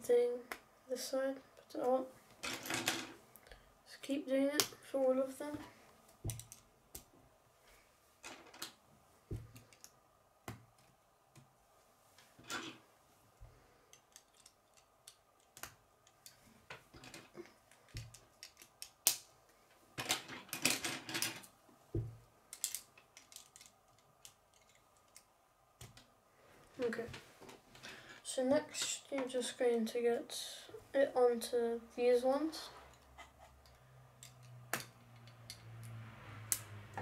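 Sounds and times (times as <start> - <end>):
plastic pieces clicking together: 6.3 - 7.1, 9.5 - 10.0, 13.9 - 19.3, 22.5 - 26.1.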